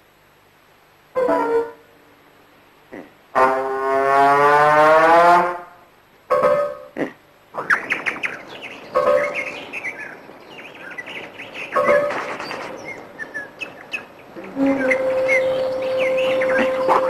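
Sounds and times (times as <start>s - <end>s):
birds chirping: 6.4s - 17.0s.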